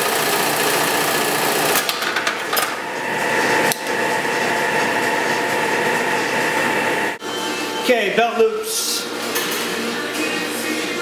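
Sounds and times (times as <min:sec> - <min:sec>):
sewing machine motor humming: 0:00.0 - 0:01.8.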